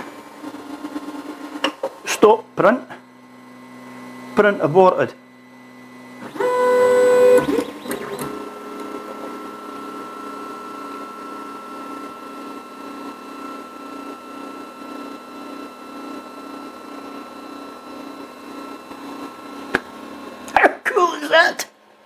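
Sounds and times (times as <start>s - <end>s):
printer mechanical whine: 0.0s - 21.4s.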